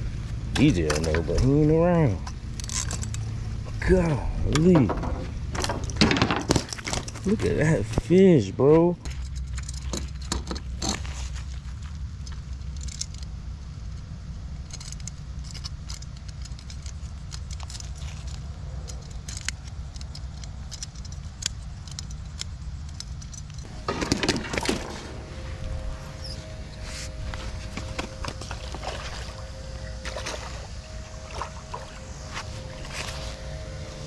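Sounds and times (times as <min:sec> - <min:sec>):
steady low rumble: 0:00.0 - 0:34.0
scuffling handling noise: 0:05.2 - 0:13.0, 0:16.2 - 0:34.0.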